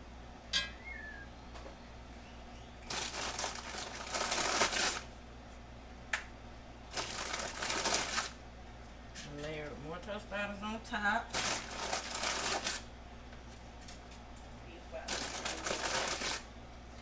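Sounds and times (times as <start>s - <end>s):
plastic bag crinkling: 2.9s - 5.1s, 6.9s - 8.4s, 11.3s - 12.9s, 15.1s - 16.5s.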